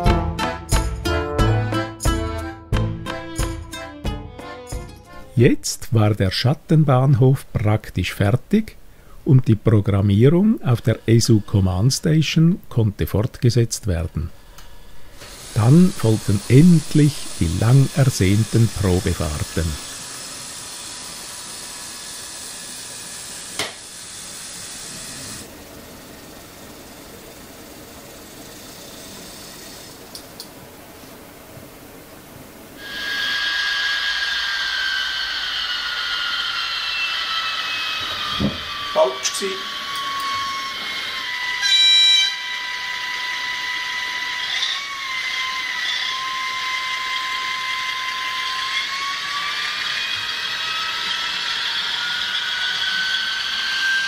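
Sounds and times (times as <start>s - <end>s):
steady hiss: 5.1s - 41.6s
model locomotive whine: 14.2s - 54.0s.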